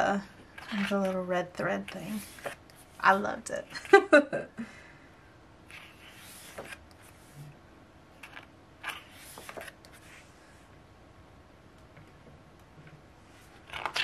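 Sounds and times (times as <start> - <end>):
paper pages rustling: 0.5 - 3.2, 5.7 - 7.4, 8.2 - 10.2, 13.4 - 14.0.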